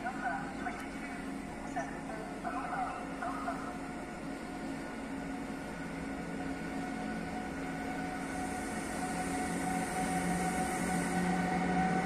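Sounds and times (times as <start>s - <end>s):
electric locomotive hum: 0.0s - 12.0s
hiss: 8.2s - 11.5s.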